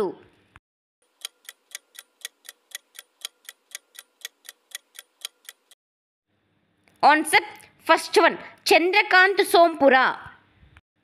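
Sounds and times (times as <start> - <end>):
clock ticking: 1.0 - 5.8.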